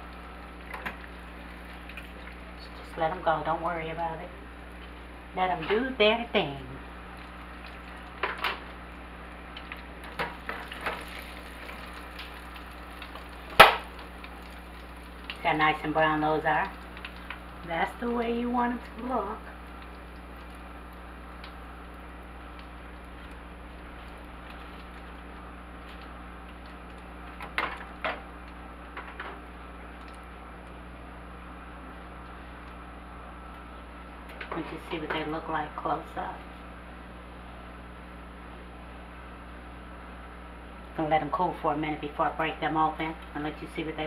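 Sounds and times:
faint steady hum: 0.0s - 44.0s
food sizzling in oil: 6.8s - 29.8s.

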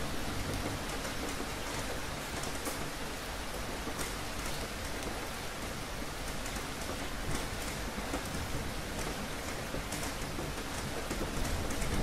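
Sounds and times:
steady rain falling: 0.0s - 12.0s.

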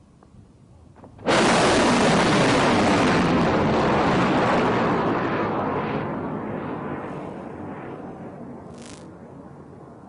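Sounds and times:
rocket motor rushing roar: 8.7s - 9.1s.

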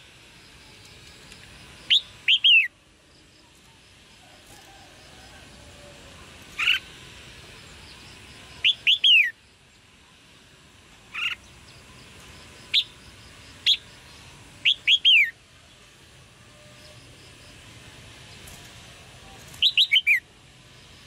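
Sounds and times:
bird chirping calls: 1.8s - 2.7s, 6.5s - 6.9s, 7.8s - 9.4s, 11.1s - 11.9s, 13.6s - 15.4s, 19.4s - 20.3s.

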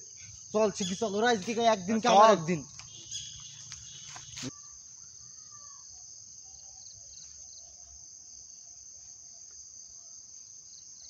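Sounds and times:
insects shrilling: 0.0s - 6.0s.

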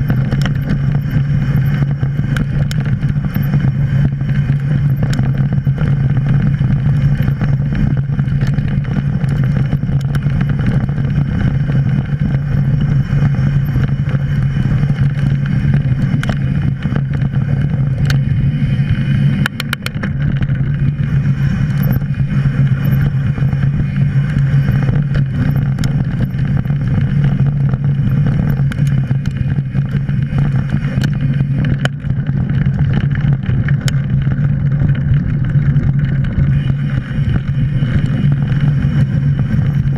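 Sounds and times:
bike clicks and rattles: 0.0s - 39.9s
knobby tyres rumbling on dirt: 0.0s - 39.9s
wind: 0.0s - 39.9s.

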